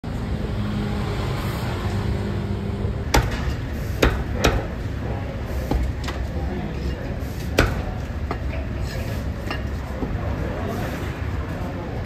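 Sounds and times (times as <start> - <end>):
cleaver chopping on wooden block: 3.2 - 4.7.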